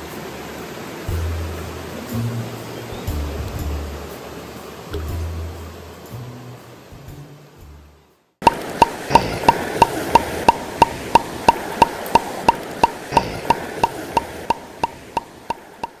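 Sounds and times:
steady hiss: 0:00.0 - 0:16.0
woodblock-like ticking: 0:08.4 - 0:16.0.

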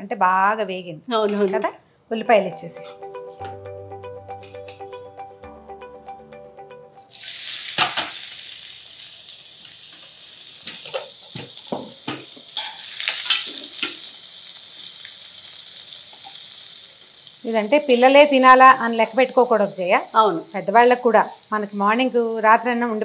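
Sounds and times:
onions sizzling in oil: 0:07.1 - 0:23.0.

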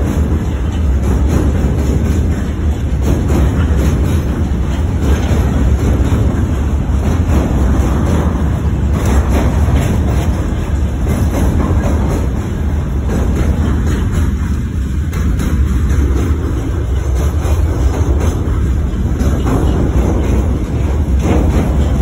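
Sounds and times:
train wheels rumbling on rails: 0:00.0 - 0:22.0.

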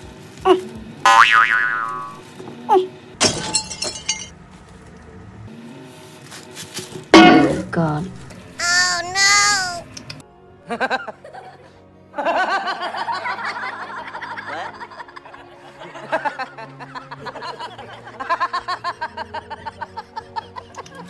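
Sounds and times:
man laughing: 0:13.9 - 0:21.0.

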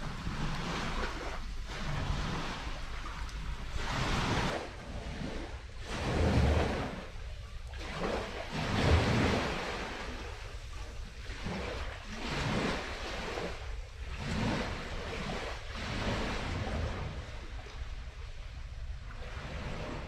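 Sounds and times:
small waves washing onto shore: 0:00.0 - 0:20.0.

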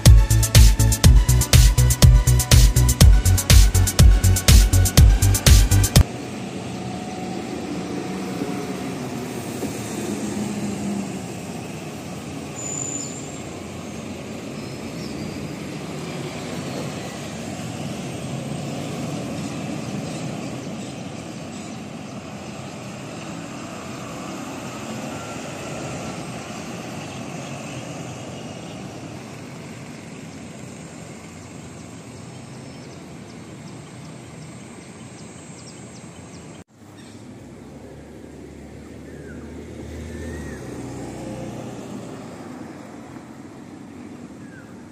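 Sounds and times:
buses passing rumble: 0:00.0 - 0:44.9.

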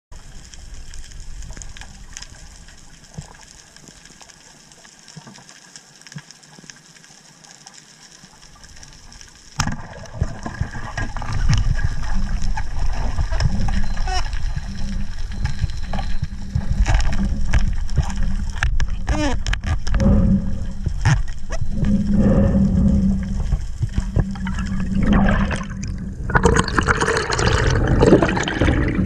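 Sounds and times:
faint clicks: 0:00.3 - 0:25.2
churning water: 0:09.6 - 0:29.0.

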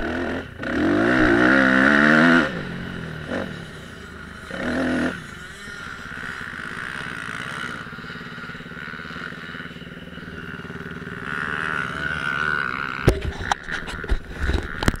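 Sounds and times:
motocross bike engine idling: 0:00.0 - 0:15.0
sharp knocks and clatter: 0:13.0 - 0:15.0.

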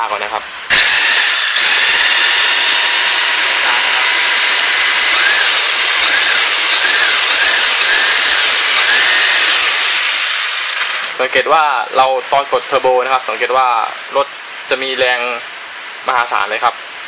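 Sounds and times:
toy electric motor and gears whirring: 0:00.7 - 0:11.2.

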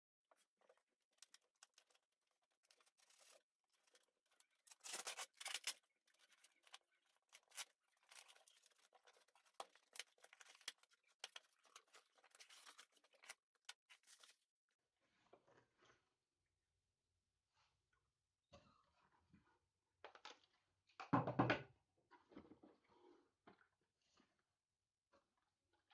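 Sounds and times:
packing tape tearing off box: 0:04.7 - 0:05.8.

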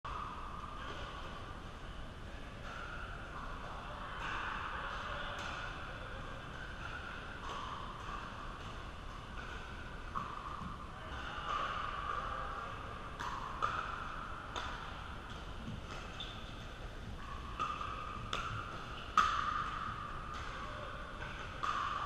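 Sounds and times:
paddles hitting plastic ball: 0:13.2 - 0:16.2.

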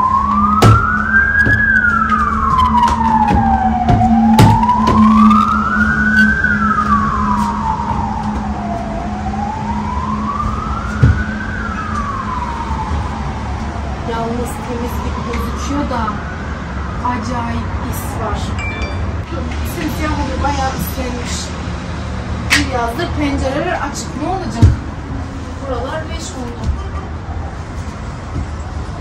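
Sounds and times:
emergency siren wailing: 0:00.0 - 0:22.1.

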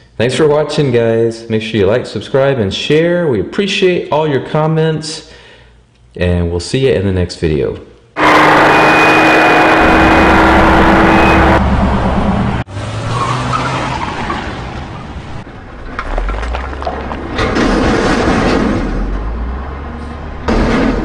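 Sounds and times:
loud burst of noise: 0:08.2 - 0:12.6, 0:17.4 - 0:19.5
vehicle engine rumbling: 0:08.2 - 0:21.0.

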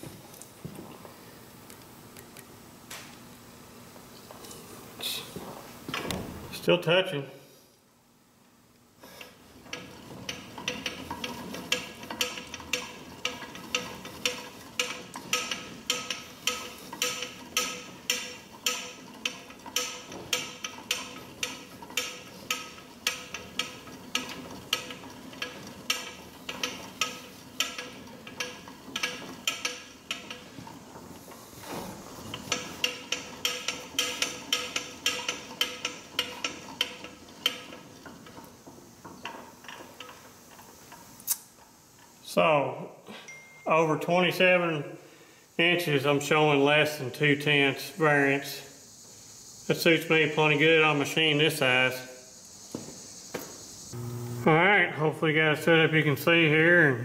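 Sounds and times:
faint machine whine: 0:00.0 - 0:57.0
lathe carriage mechanical clicking: 0:09.2 - 0:42.1.

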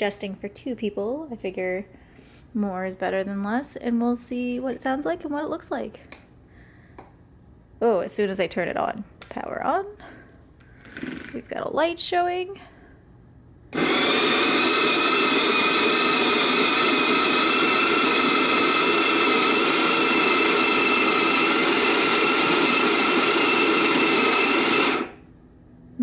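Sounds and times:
coffee grinder motor whine: 0:10.8 - 0:11.4, 0:13.7 - 0:25.2
coffee beans grinding: 0:13.8 - 0:25.2.

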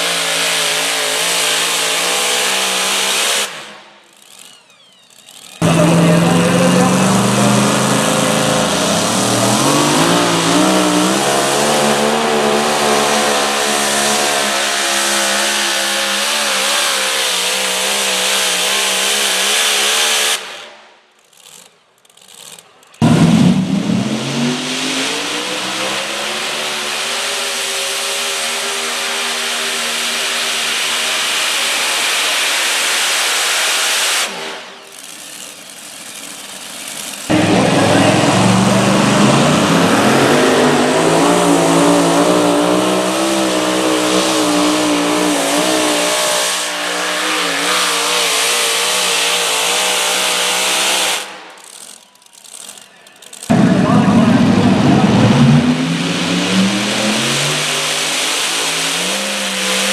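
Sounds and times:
truck engine at full throttle: 0:00.0 - 0:20.6, 0:21.4 - 0:59.9.

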